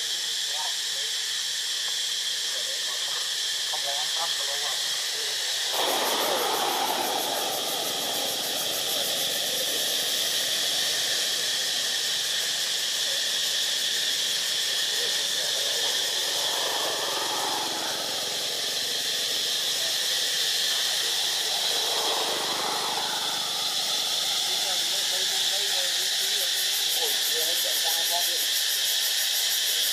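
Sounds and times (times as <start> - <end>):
high-pitched hiss: 0.0 - 29.9.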